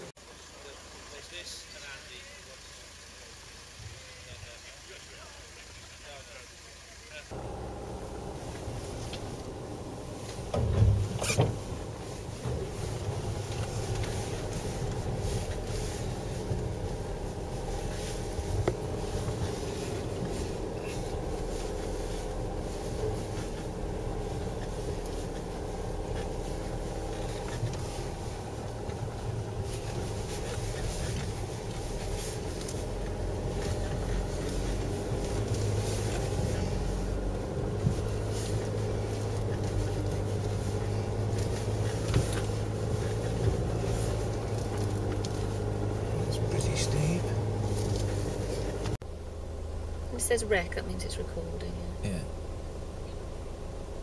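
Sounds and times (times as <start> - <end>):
knocks over ruts: 0.0 - 49.0
car engine drone: 0.0 - 54.0
tyre and suspension noise: 7.3 - 49.0.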